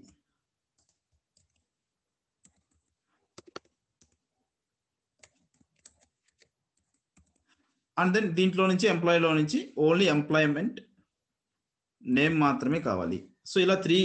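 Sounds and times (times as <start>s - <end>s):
computer keyboard keystrokes: 2.4s - 4.2s, 5.2s - 7.4s.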